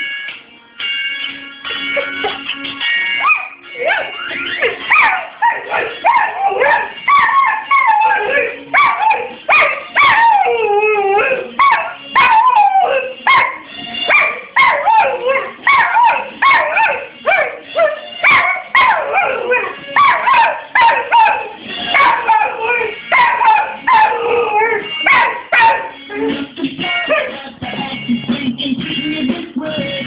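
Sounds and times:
pop song music: 0.0s - 30.0s
dog howling: 3.2s - 26.4s.

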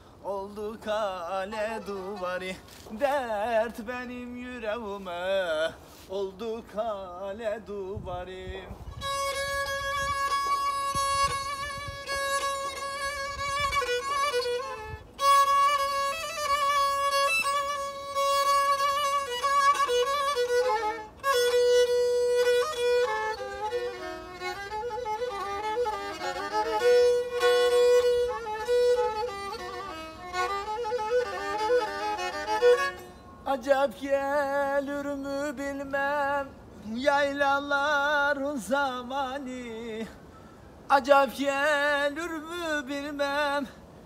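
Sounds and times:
bowed fiddle solo melody: 0.8s - 3.6s, 8.8s - 33.5s.

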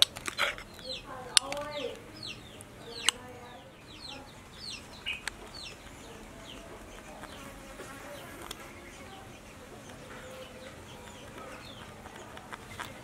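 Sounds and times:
sharp clicks: 0.0s - 3.3s, 4.6s - 7.4s
chickens peeping: 0.0s - 13.0s.

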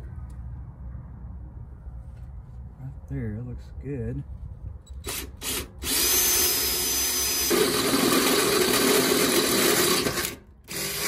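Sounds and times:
electric drill boring metal: 5.0s - 11.0s.

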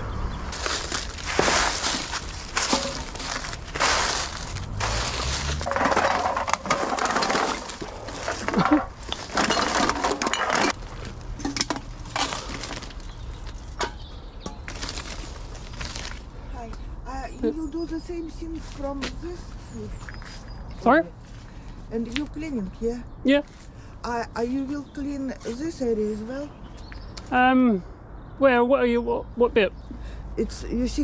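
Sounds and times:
litter and leaves crunching: 0.0s - 22.7s.

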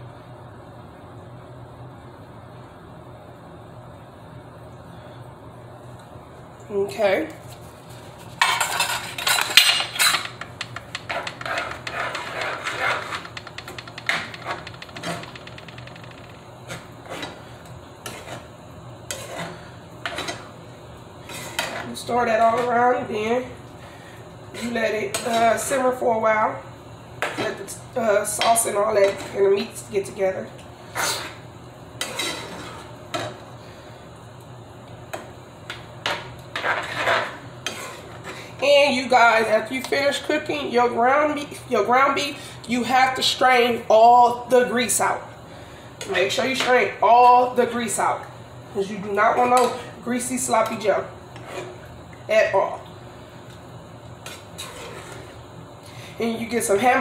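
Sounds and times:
spoon scraping skillet: 7.4s - 20.5s, 21.2s - 22.8s, 32.0s - 33.3s, 36.5s - 38.5s, 50.6s - 51.9s, 54.2s - 55.4s.

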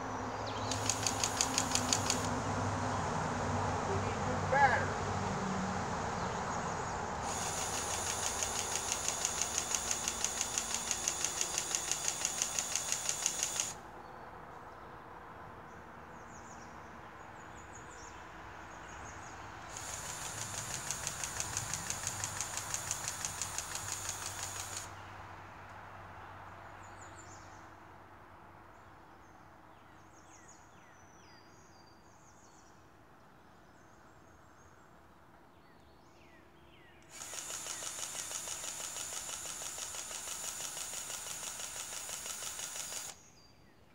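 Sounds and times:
grease gun motor whirring: 0.7s - 2.3s, 7.2s - 13.8s, 19.7s - 24.9s, 37.1s - 43.2s.

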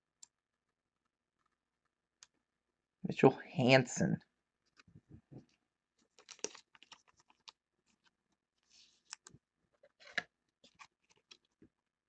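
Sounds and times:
cardboard cards rustling: 4.6s - 11.6s.

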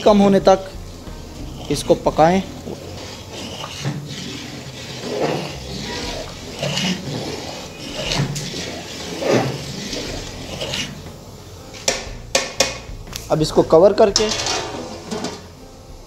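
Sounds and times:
water swishing and sloshing: 1.2s - 11.0s
ladle stirring rice in water: 1.4s - 11.0s.

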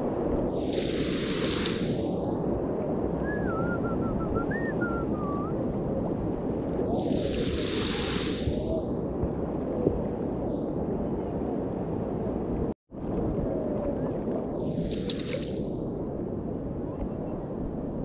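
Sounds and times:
wind on microphone: 0.0s - 18.0s
faint wavering whistle: 3.2s - 5.6s
water splashing around boat: 6.9s - 9.4s, 14.6s - 15.7s.

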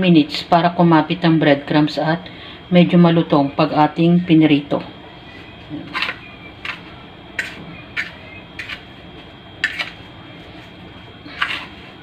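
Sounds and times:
fork scraping on ceramic plate: 5.9s - 8.9s, 9.6s - 10.0s, 11.3s - 12.0s.

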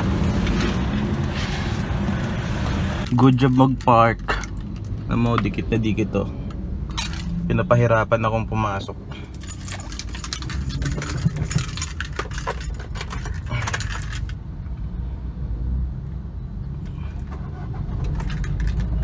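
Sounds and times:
car keys jangling and clicking: 6.9s - 7.4s, 9.1s - 14.4s, 16.8s - 19.0s.

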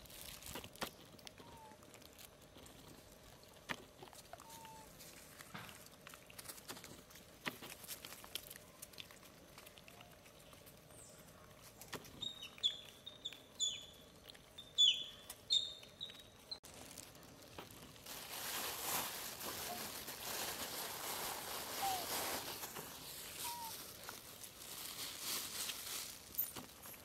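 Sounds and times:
monkey chirping calls: 12.2s - 14.0s, 14.6s - 16.3s, 23.4s - 23.8s
monkeys scuffing on stone: 18.9s - 27.0s.

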